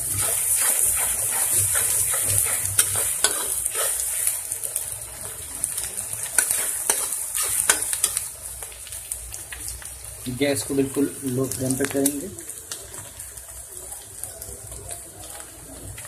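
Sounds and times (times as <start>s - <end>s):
spatula scraping a pan: 0.0s - 4.5s, 6.2s - 8.3s
onions sizzling in hot oil: 0.0s - 16.0s.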